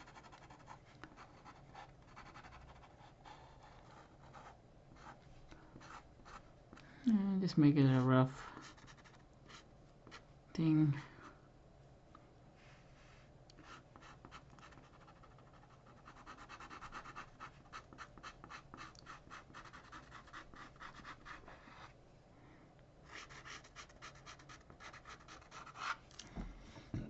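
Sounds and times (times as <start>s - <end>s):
pen scratching on paper: 0.0s - 5.2s, 8.6s - 10.2s, 13.6s - 21.9s, 23.1s - 26.0s.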